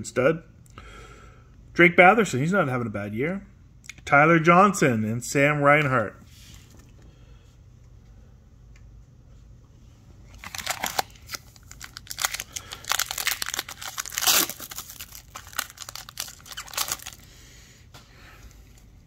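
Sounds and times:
foil wrapper tearing and crinkling: 10.3 - 17.2.

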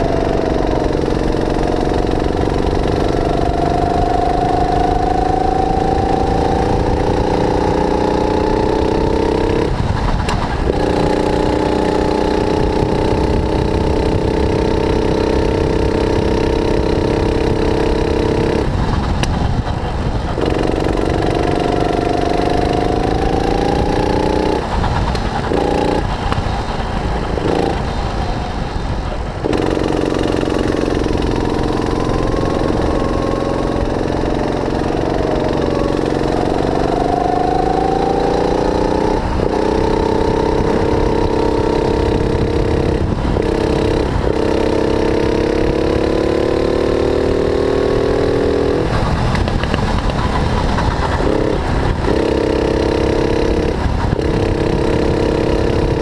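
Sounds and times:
low rumble: 0.0 - 44.7
kart engine running hard: 0.0 - 56.0.

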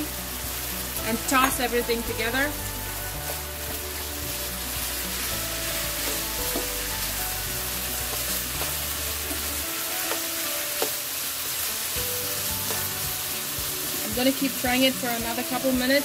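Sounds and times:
food sizzling in a wok: 0.0 - 16.0
spatula tapping pan: 6.0 - 6.8, 8.0 - 11.0, 12.6 - 13.0.

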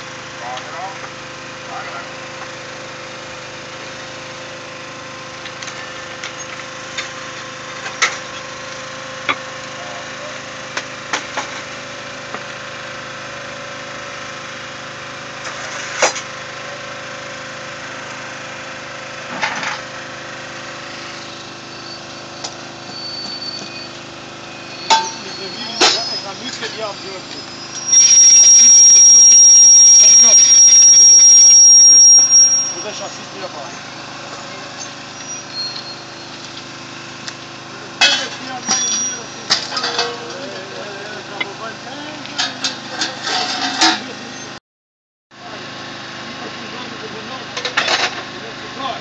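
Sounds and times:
small engine humming: 0.0 - 42.4.

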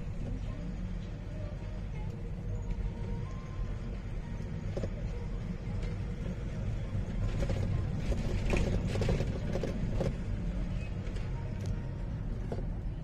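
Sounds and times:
vehicle rumble: 0.0 - 13.0
cab creaking and rattling: 5.7 - 13.0.

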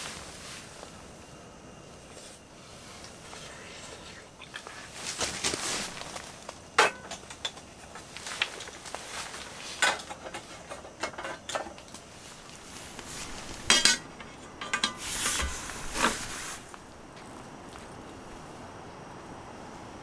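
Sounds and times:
metal cookware clanking: 6.8 - 7.6, 9.8 - 11.8, 13.6 - 15.5.

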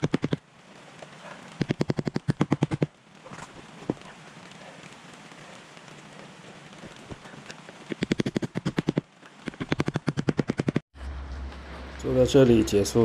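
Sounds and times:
rain hissing: 0.0 - 9.8.

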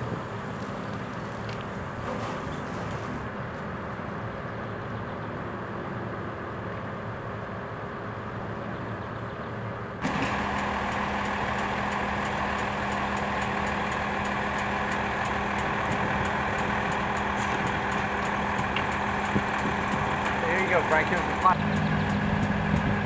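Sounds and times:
excavator diesel engine running: 10.0 - 23.0
low hum: 10.0 - 23.0.

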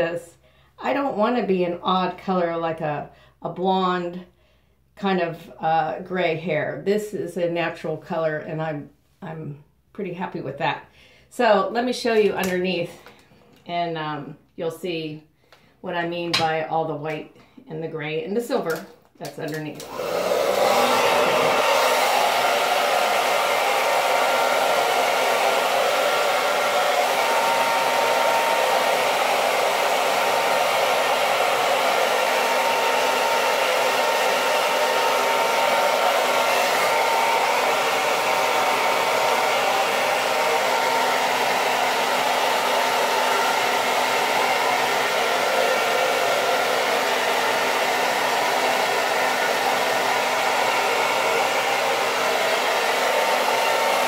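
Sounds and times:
hair dryer blowing: 11.9 - 13.2, 18.4 - 54.0.

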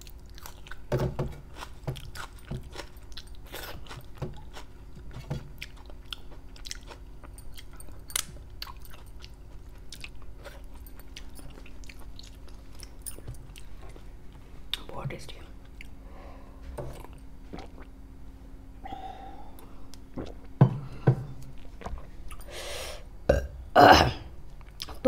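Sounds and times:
chewing and wet mouth sounds: 0.0 - 14.9, 15.6 - 16.0, 16.9 - 18.0, 19.6 - 20.6, 24.6 - 25.0.

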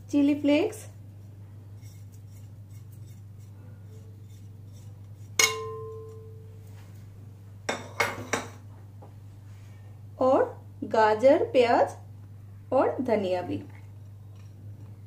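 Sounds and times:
crockery clinking: 5.4 - 6.4
ceramic plate striking bowl: 5.4 - 6.5.

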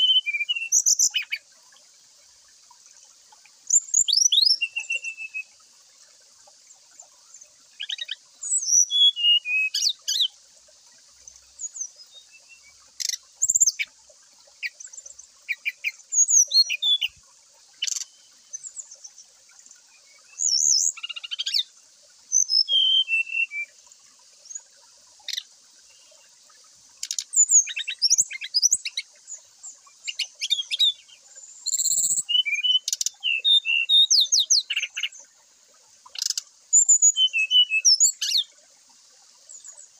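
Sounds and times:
bird singing whistled phrases: 0.0 - 1.4, 3.7 - 5.5, 7.8 - 10.3, 15.5 - 17.2, 22.3 - 23.8, 27.0 - 29.0, 30.0 - 35.1, 36.2 - 38.5.

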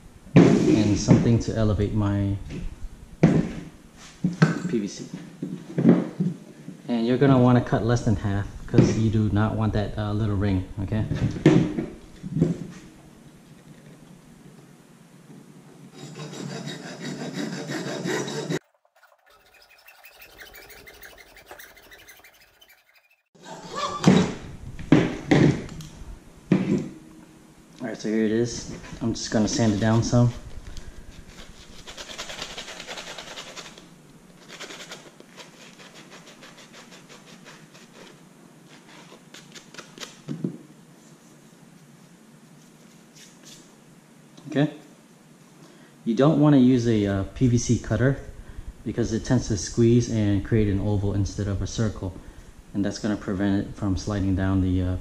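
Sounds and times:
hacksaw cutting plastic pipe: 16.0 - 23.2
sanding block rubbing plastic: 16.1 - 23.3, 31.4 - 33.8, 34.4 - 38.2.

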